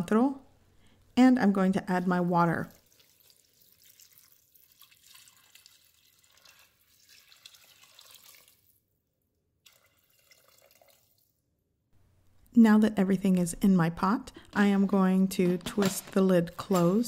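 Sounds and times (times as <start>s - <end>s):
water pouring into pot: 2.6s - 8.8s, 9.6s - 11.4s.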